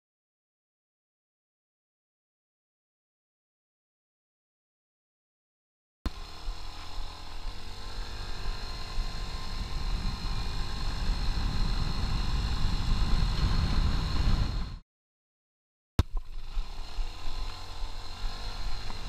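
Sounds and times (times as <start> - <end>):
scooter engine accelerating: 6.1 - 14.8, 16.2 - 19.0
wind rumble on microphone: 6.1 - 14.8, 16.1 - 19.0.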